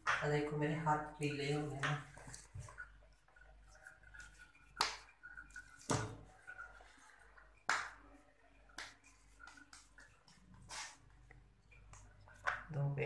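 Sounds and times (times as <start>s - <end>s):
hands slapping dough: 4.0s - 6.6s, 7.4s - 13.0s.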